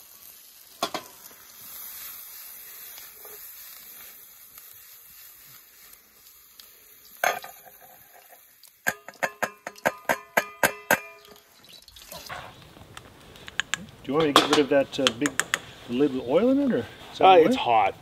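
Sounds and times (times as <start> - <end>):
food sizzling in frying pan: 0.0 - 18.0
pan knocking against steel bowl: 8.9 - 11.2.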